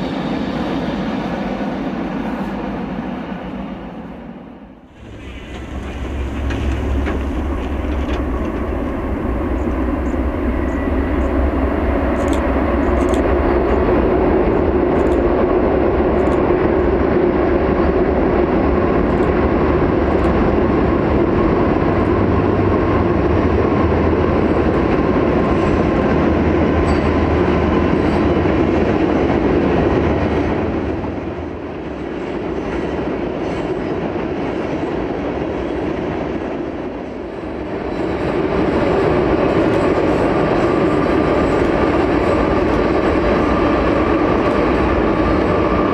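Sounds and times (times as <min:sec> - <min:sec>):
diesel locomotive rumble: 0:04.8 - 0:33.0
train wheels rolling on rails: 0:04.8 - 0:45.9
scattered clicks: 0:12.1 - 0:13.8, 0:14.9 - 0:15.3, 0:16.2 - 0:16.5.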